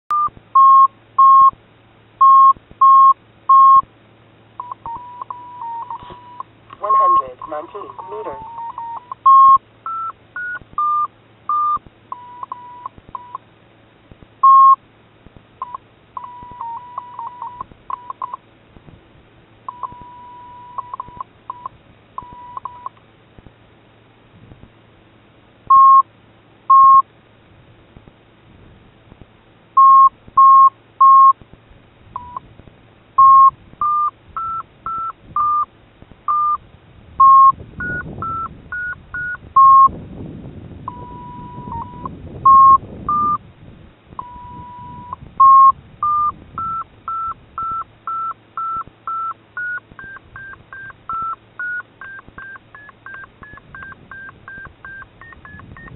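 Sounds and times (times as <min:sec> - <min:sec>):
short electronic beeps: 0:00.1 - 0:01.6, 0:02.2 - 0:03.9, 0:04.6 - 0:13.4, 0:14.4 - 0:14.8, 0:15.6 - 0:18.4, 0:19.7 - 0:23.0, 0:25.7 - 0:26.0, 0:26.7 - 0:27.0, 0:29.8 - 0:31.4, 0:32.2 - 0:32.4, 0:33.2 - 0:35.7, 0:36.3 - 0:36.6, 0:37.2 - 0:39.9, 0:40.9 - 0:43.4, 0:44.2 - 0:55.9
long held electronic tone: 0:04.6 - 0:13.4, 0:15.6 - 0:18.2, 0:19.7 - 0:22.9, 0:40.9 - 0:43.4, 0:44.2 - 0:55.9.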